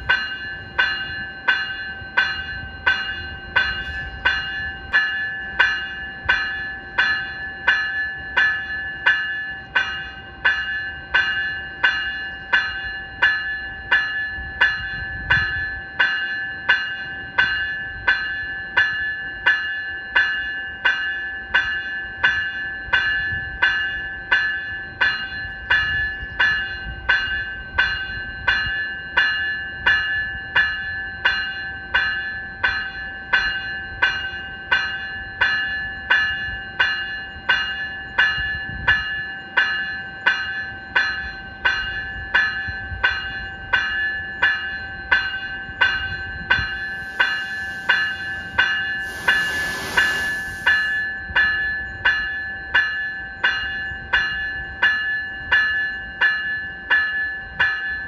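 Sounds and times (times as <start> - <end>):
electronic bell ringing: 46.5 - 51.9.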